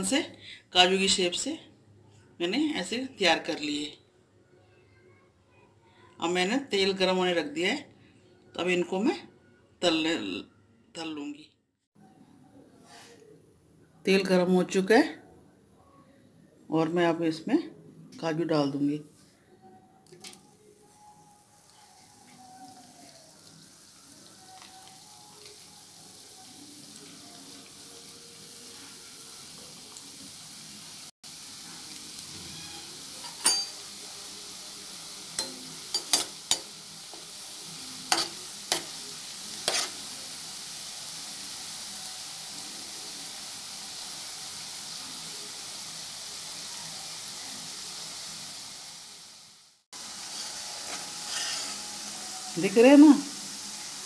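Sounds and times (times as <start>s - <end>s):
dough deep-frying in oil: 20.2s - 54.0s.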